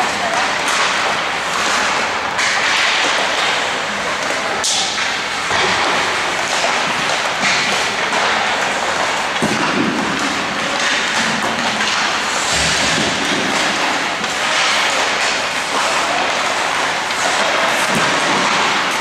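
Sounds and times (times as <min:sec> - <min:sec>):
skates on ice: 0:00.0 - 0:19.0
puck shot thump: 0:04.2 - 0:19.0.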